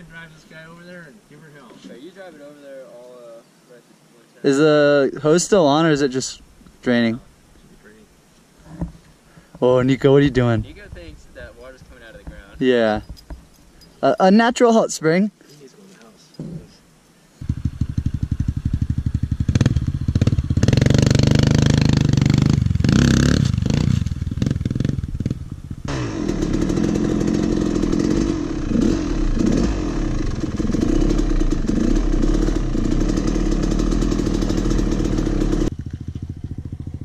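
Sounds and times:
dirt bike engine revving: 17.4 - 37.0.

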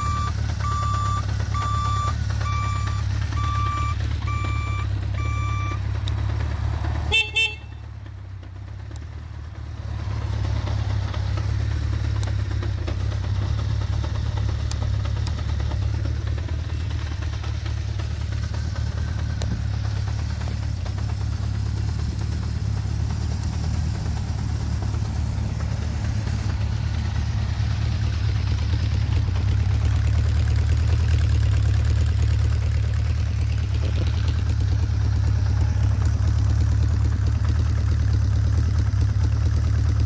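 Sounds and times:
turn-signal beeper beeping: 0.0 - 5.8
motorcycle engine idling: 0.0 - 40.0
horn honks: 7.1 - 8.0.

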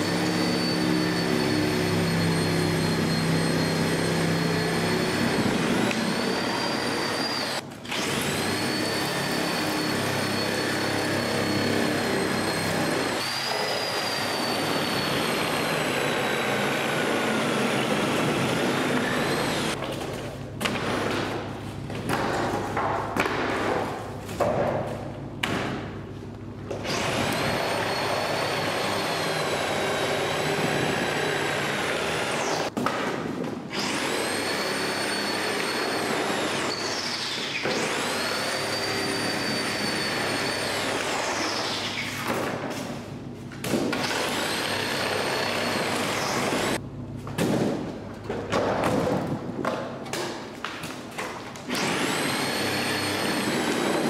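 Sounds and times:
power saw buzzing: 0.0 - 19.8, 26.8 - 32.7, 33.7 - 42.1, 43.9 - 46.8, 51.7 - 54.0.

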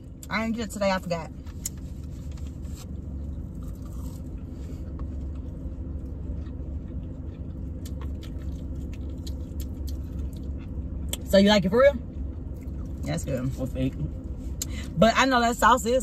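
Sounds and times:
car engine humming: 0.0 - 16.0
person chewing: 1.5 - 11.3, 12.0 - 13.1.

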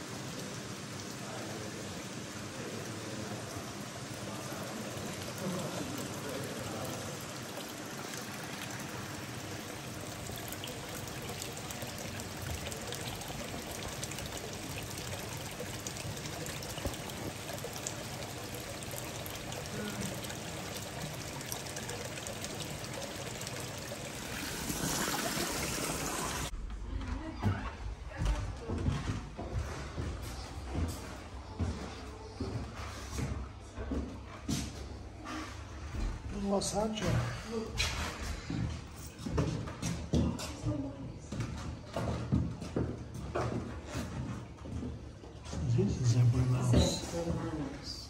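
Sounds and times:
water trickling and splashing: 0.0 - 26.6, 41.9 - 48.0.

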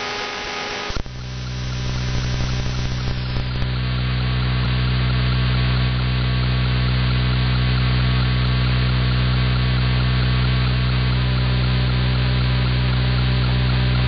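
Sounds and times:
radio static: 0.0 - 3.7
buzzing mains hum: 0.0 - 14.0.

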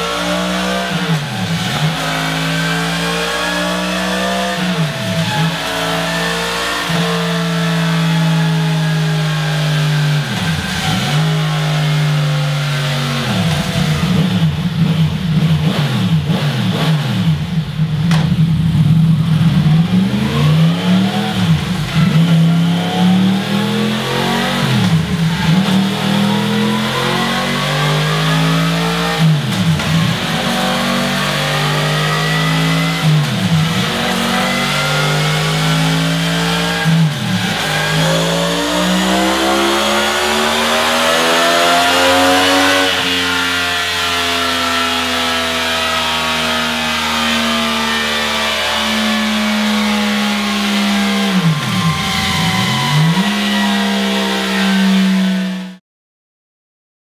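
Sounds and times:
motorcycle engine revving: 0.0 - 55.8.

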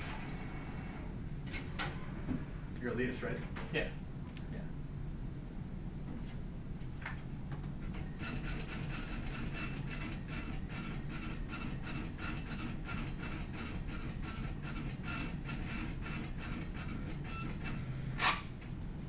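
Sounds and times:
receipt printer printing: 8.0 - 18.4.

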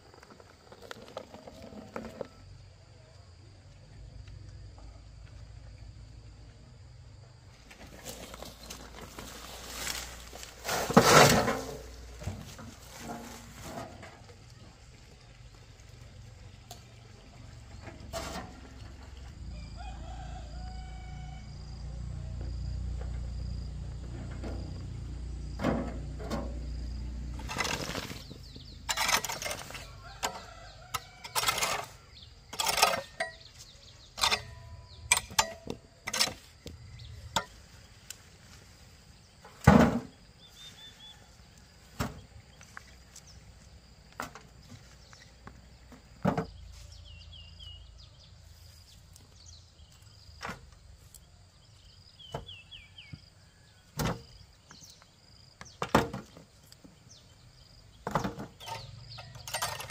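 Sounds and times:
small birds chirping: 26.8 - 31.2, 32.0 - 35.1.

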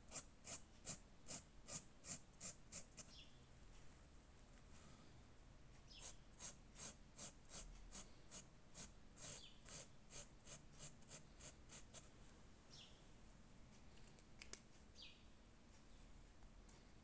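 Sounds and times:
marker scratching on fabric: 0.0 - 3.2, 5.9 - 12.1.

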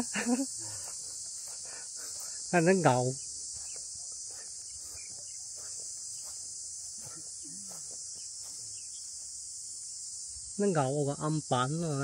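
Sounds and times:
insects chirring: 0.0 - 12.0
faint distant voices: 0.6 - 9.2.

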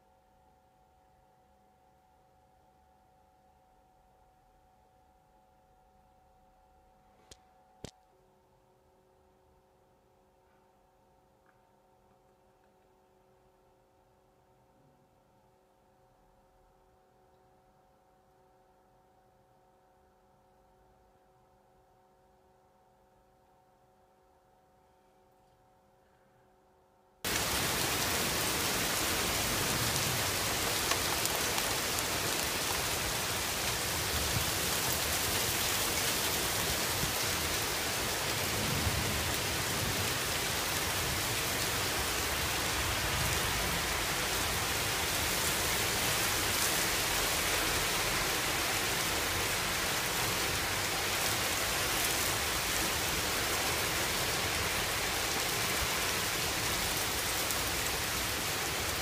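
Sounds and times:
heavy rain on street and cars: 27.3 - 59.0.

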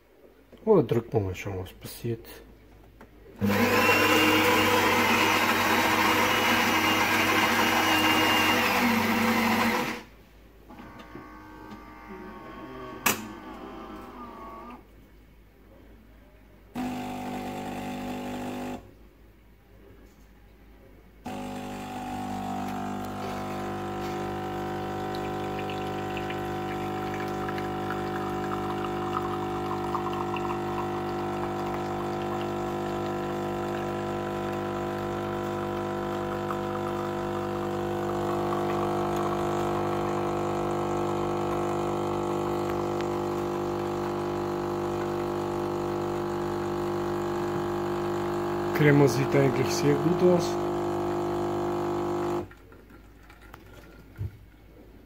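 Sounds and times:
coffee running into cup: 3.4 - 10.0, 21.3 - 54.4
espresso machine pump humming: 3.4 - 10.1, 16.8 - 18.8, 21.3 - 52.6.

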